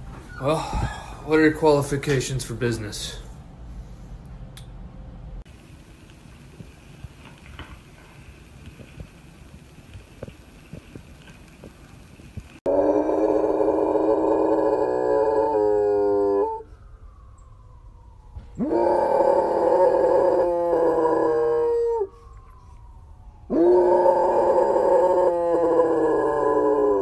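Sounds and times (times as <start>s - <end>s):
dog howling: 12.7s - 16.7s, 18.6s - 22.2s, 23.4s - 27.0s.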